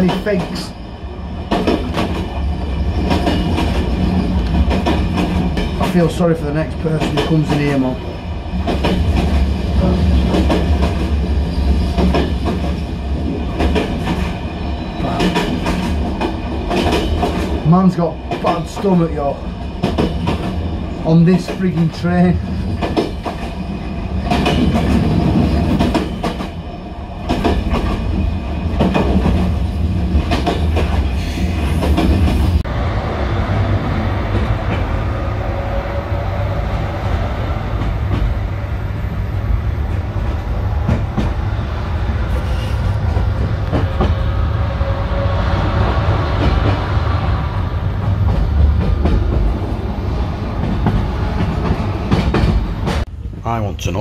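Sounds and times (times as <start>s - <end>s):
train rumble: 0.0s - 54.0s.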